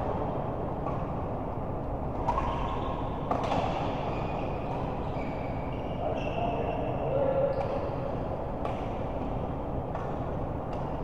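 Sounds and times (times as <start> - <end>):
high shoe squeaks: 4.0 - 7.8.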